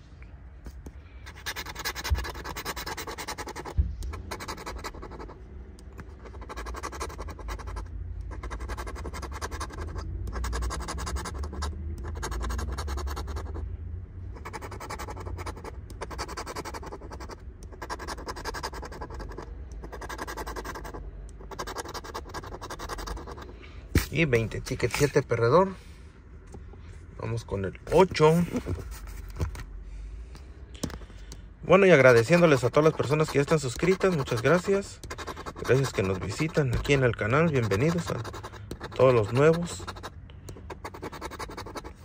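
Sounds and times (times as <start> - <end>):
tool scraping lottery ticket: 1.2 - 13.6, 14.4 - 23.5, 31.7 - 42.0.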